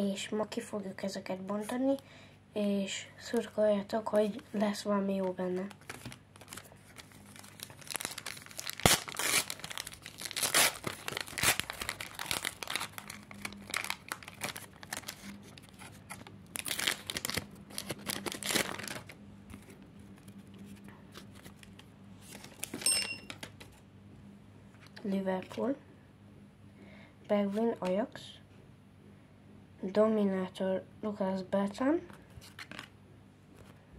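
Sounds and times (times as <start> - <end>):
card packs tearing and crinkling: 5.3 - 19.7, 21.1 - 23.6.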